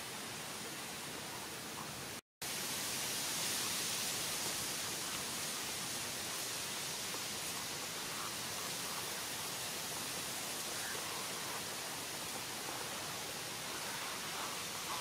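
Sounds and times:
outdoor hiss: 0:00.0 - 0:15.0
faint bird calls: 0:10.6 - 0:15.0.

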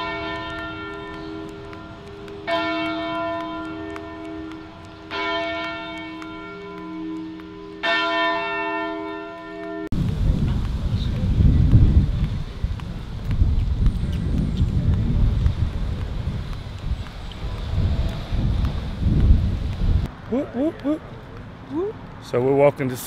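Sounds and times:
church bell tolling: 0:00.0 - 0:09.9
wind rumble on microphone: 0:09.9 - 0:20.2.

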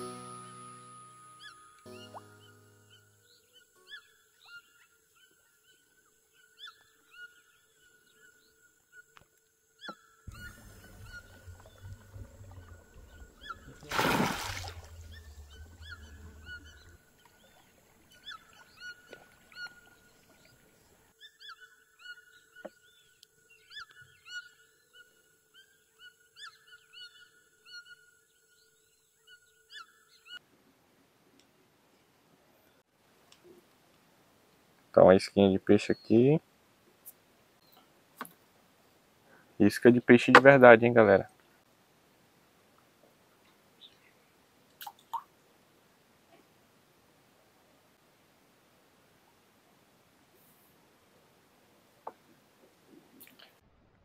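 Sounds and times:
quick chirping calls: 0:10.3 - 0:20.0
low rumble: 0:10.4 - 0:13.9.

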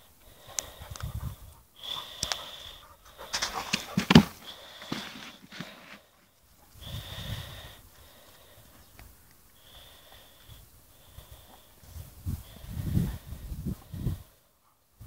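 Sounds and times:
dog sniffing and snorting: 0:00.7 - 0:06.0.

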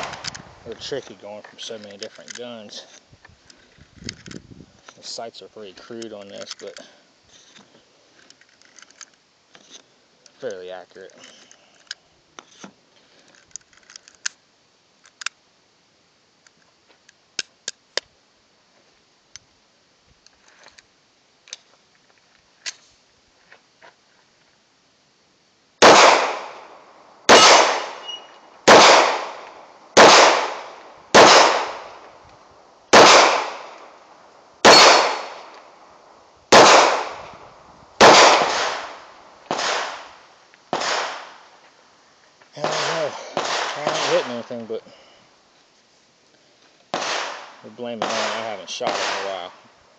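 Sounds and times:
pistol shots echoing: 0:25.8 - 0:32.0, 0:32.9 - 0:33.8, 0:34.6 - 0:35.5, 0:36.5 - 0:37.2, 0:38.0 - 0:40.1, 0:40.7 - 0:41.4, 0:42.6 - 0:44.4, 0:46.9 - 0:49.6.

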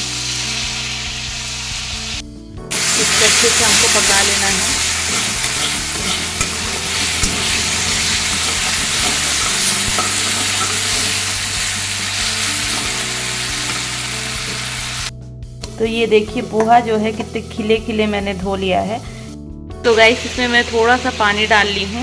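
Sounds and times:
vegetables sizzling in oil: 0:00.0 - 0:15.1, 0:19.9 - 0:22.0
spatula scraping pan: 0:04.0 - 0:13.0.

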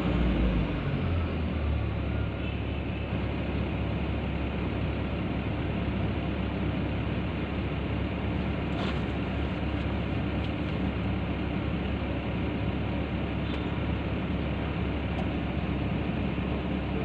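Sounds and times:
excavator diesel engine idling: 0:00.0 - 0:17.0.

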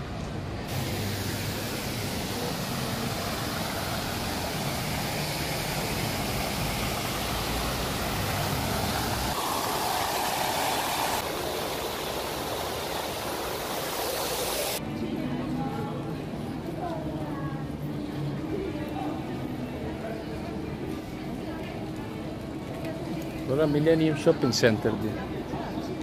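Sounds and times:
fountain water splashing: 0:00.7 - 0:14.8.

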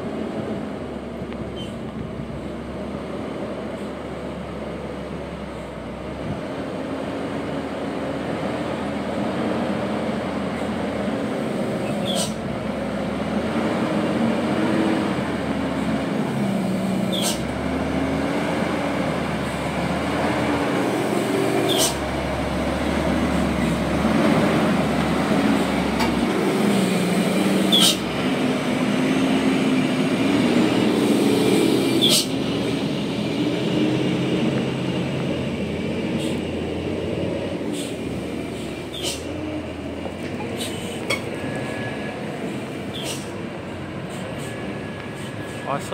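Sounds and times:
diesel truck engine labouring: 0:00.0 - 0:45.9.

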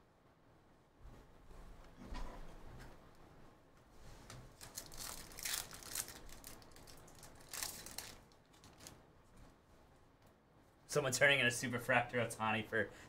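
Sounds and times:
foil wrapper tearing and crinkling: 0:04.5 - 0:09.0.

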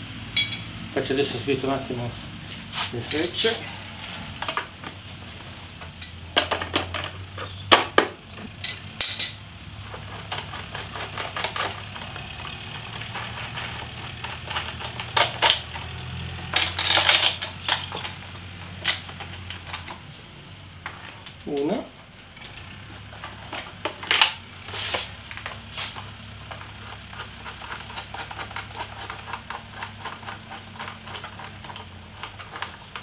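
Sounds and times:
low steady hum: 0:00.0 - 0:33.0
tool clicks and metallic clinks: 0:00.4 - 0:00.7, 0:03.0 - 0:03.8, 0:08.6 - 0:11.8, 0:12.9 - 0:15.9.

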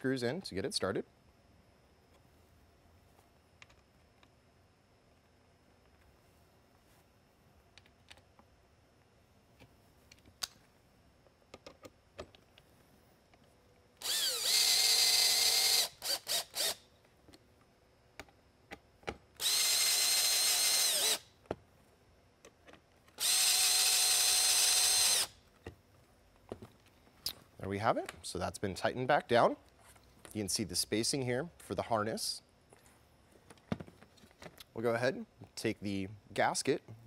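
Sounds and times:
cordless drill driving screws: 0:14.0 - 0:16.8, 0:19.4 - 0:21.3, 0:23.2 - 0:25.4
drill trigger blips: 0:14.0 - 0:16.8, 0:19.4 - 0:21.3, 0:23.2 - 0:25.3.

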